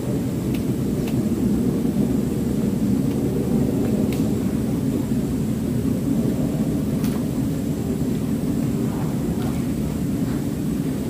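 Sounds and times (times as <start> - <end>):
faint tick: 0.5 - 1.2.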